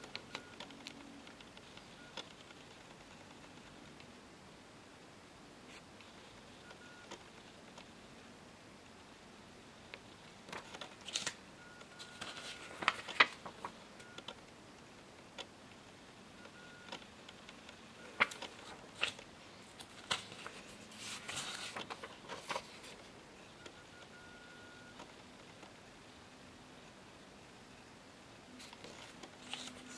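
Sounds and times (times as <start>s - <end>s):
paper cards rustling: 10.5s - 11.4s, 12.0s - 13.8s, 17.4s - 23.1s, 28.5s - 29.9s.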